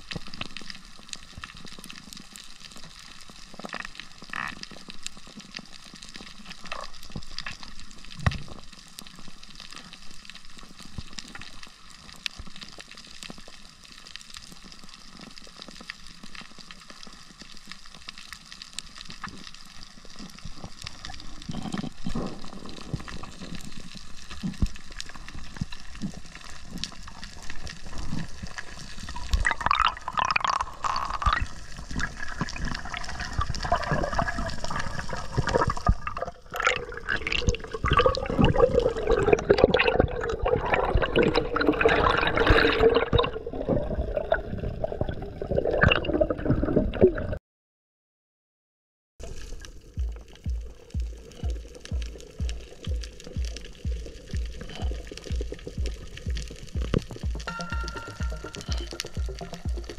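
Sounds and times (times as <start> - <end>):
reef clicks crackling: 0.0 - 40.2, 49.2 - 59.9
water rushing and swishing: 19.9 - 47.4.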